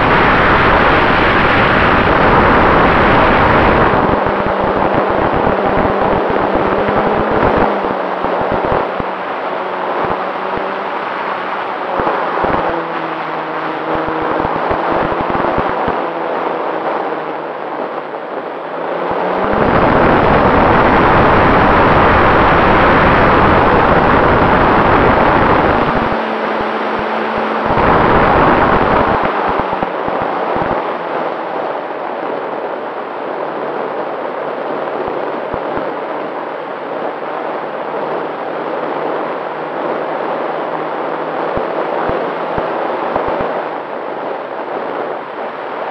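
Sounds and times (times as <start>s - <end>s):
wind buffeting microphone: 0.0s - 45.9s
wind rushing past camera: 0.0s - 45.9s.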